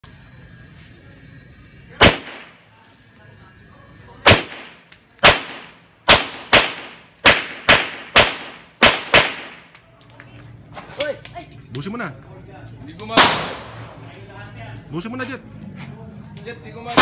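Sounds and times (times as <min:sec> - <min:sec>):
pistol shots: 0:02.0 - 0:02.6, 0:04.2 - 0:09.7, 0:13.1 - 0:14.0.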